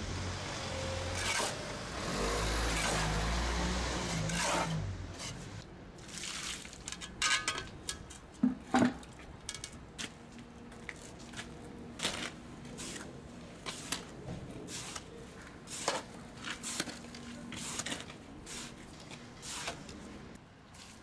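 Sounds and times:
shovel scraping concrete: 0:01.1 - 0:01.6, 0:02.6 - 0:03.3, 0:03.9 - 0:05.5, 0:14.7 - 0:20.0.

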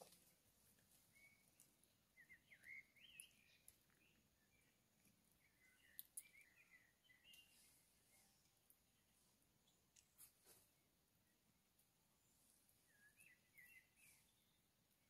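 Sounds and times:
faint bird twittering: 0:00.9 - 0:09.8, 0:12.6 - 0:14.8
small clicks: 0:05.0 - 0:06.5.

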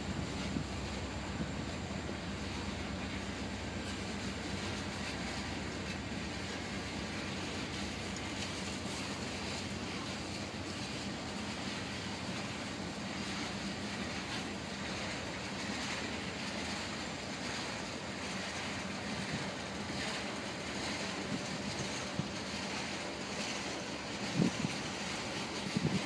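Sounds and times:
freight train wheels on rail: 0:00.0 - 0:26.0.

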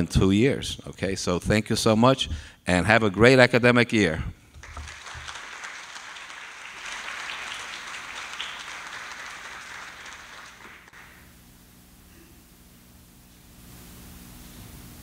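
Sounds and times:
audience applauding: 0:04.5 - 0:11.3.

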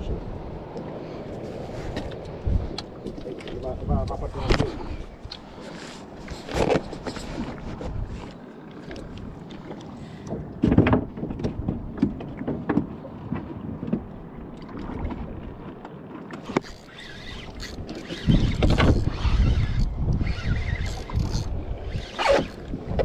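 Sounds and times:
wind gusts on microphone: 0:00.0 - 0:05.3, 0:17.2 - 0:23.0
water lapping against boat hull: 0:00.0 - 0:23.0
fishing rod and reel clicks: 0:16.4 - 0:23.0.

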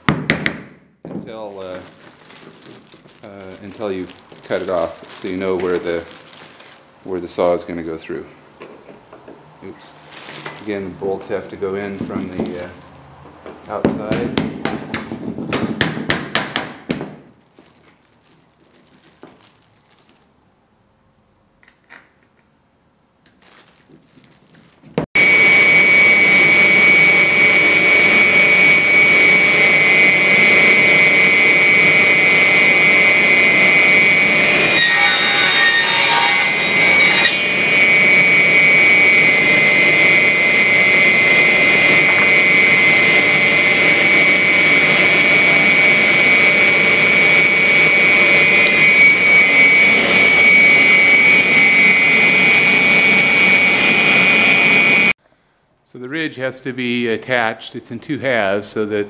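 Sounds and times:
radial arm saw whining: 0:25.2 - 0:55.1
saw blade cutting wood: 0:27.8 - 0:52.8.

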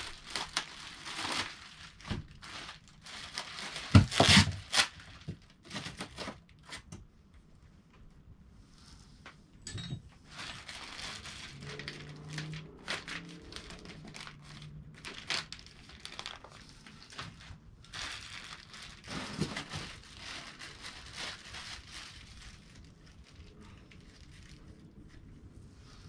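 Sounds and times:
plastic bags crinkling: 0:00.0 - 0:06.8, 0:10.3 - 0:25.0.

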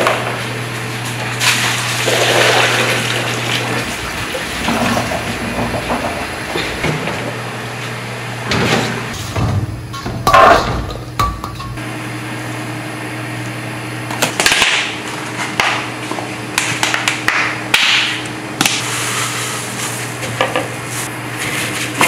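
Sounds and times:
brine pouring and splashing: 0:01.4 - 0:06.5.

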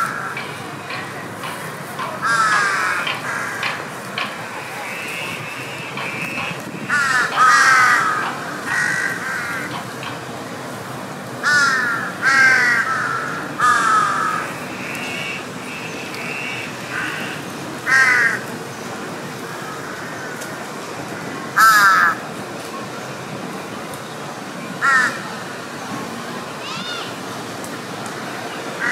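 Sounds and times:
crows cawing: 0:02.2 - 0:09.8, 0:11.4 - 0:18.4, 0:19.7 - 0:20.5, 0:21.2 - 0:22.2, 0:24.8 - 0:25.2.

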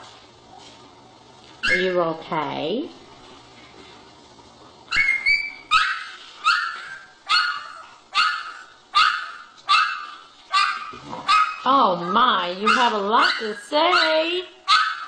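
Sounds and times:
puppy barking in high yaps: 0:04.9 - 0:15.0.

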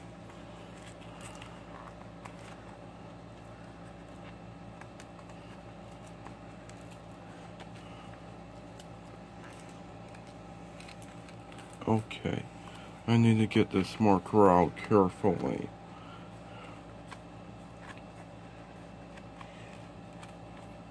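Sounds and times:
steady low hum: 0:00.0 - 0:20.9
plastic blister pack crinkling: 0:00.3 - 0:12.2.

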